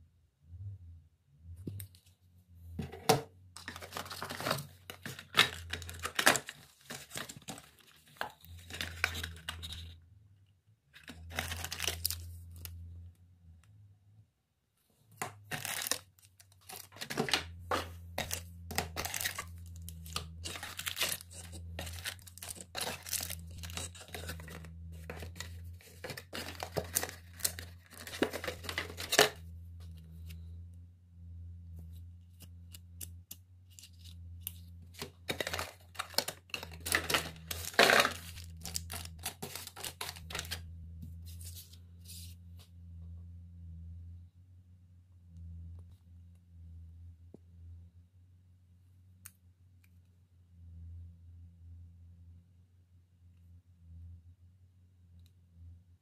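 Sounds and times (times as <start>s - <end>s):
plastic bags crinkling: 3.6s - 9.8s, 11.0s - 12.6s, 15.4s - 29.4s, 35.0s - 40.6s
low hum: 16.2s - 56.0s.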